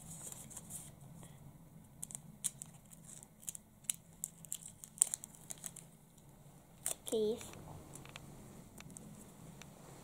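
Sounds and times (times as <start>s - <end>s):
faint low hum: 0.0s - 10.0s
paper crackling: 2.0s - 5.9s.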